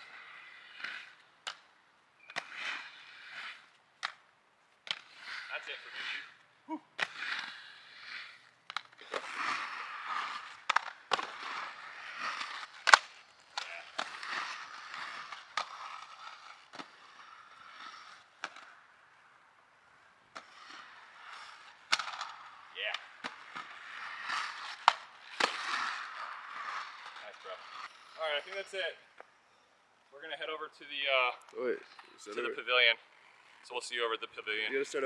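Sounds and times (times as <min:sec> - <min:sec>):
skate wheels rolling on concrete: 0:00.0 - 0:35.0
skates clacking on landing: 0:07.0 - 0:18.8, 0:20.3 - 0:28.9.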